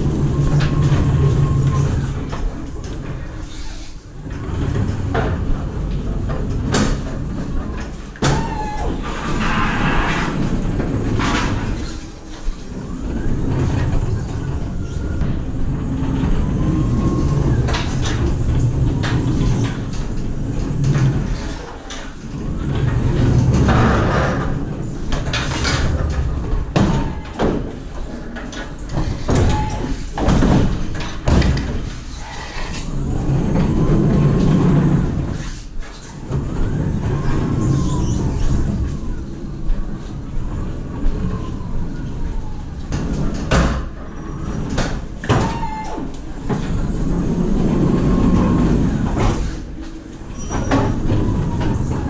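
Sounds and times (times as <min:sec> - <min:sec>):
wheels rumbling on metal floor: 0:00.0 - 0:52.0
pallets knocking and clattering: 0:17.2 - 0:32.2, 0:41.4 - 0:52.0.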